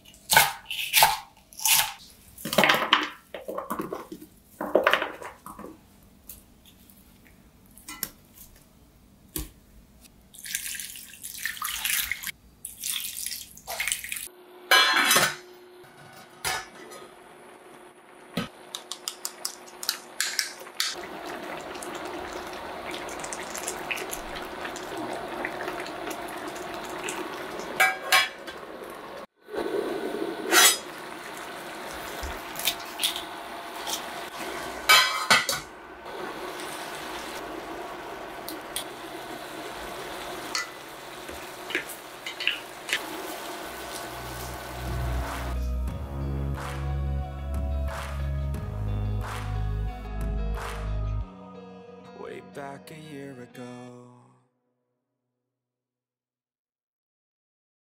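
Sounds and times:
water poured into a metal pot: 0:10.4 - 0:14.3, 0:21.0 - 0:29.2
pot boiling: 0:16.5 - 0:45.6.

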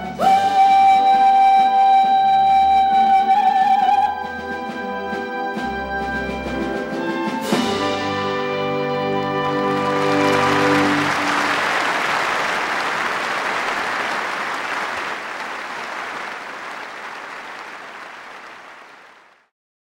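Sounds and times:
orchestra holding final chord: 0:07.5 - 0:12.9
audience applauding: 0:08.6 - 0:19.5.

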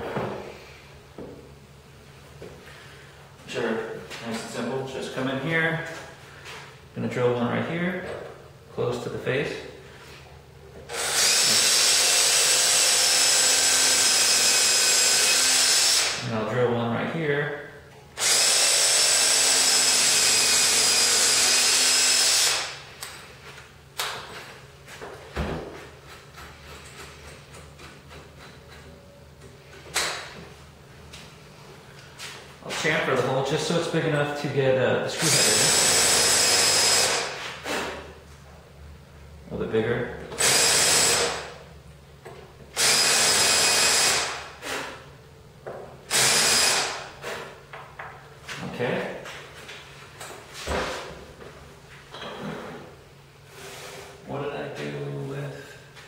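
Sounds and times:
cordless drill boring: 0:10.9 - 0:16.2, 0:18.2 - 0:22.8, 0:35.2 - 0:37.3, 0:40.4 - 0:41.4, 0:42.8 - 0:44.9, 0:46.1 - 0:47.0.

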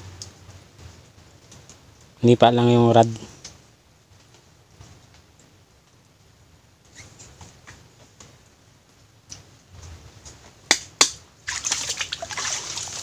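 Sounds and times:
hands splashing in muddy water: 0:11.4 - 0:13.0
person wading through water: 0:11.4 - 0:13.0.

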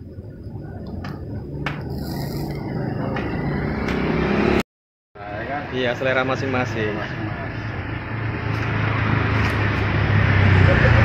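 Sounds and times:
skewers sizzling over charcoal: 0:01.8 - 0:02.8.

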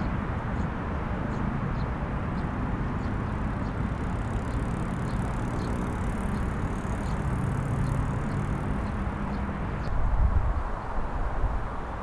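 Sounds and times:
low rumble of road traffic: 0:00.0 - 0:12.0.

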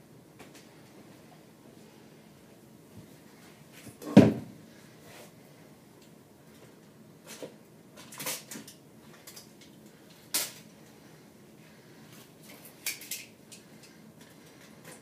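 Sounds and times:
knocks and clatter in cabinet: 0:04.0 - 0:04.6.

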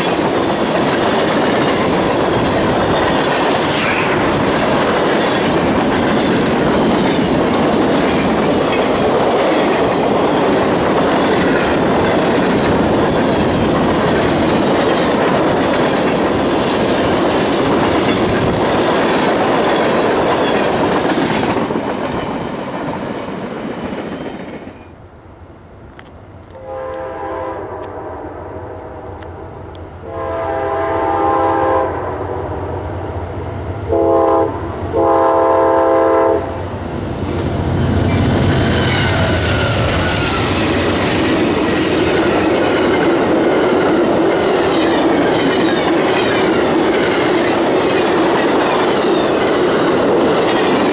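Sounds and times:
freight train wheels rumbling: 0:00.0 - 0:50.9
locomotive air horn blasts: 0:26.6 - 0:29.2, 0:30.0 - 0:32.1, 0:33.9 - 0:36.6.

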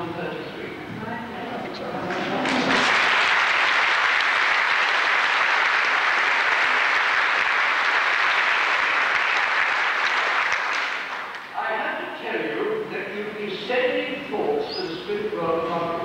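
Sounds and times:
audience applauding: 0:02.0 - 0:11.5.

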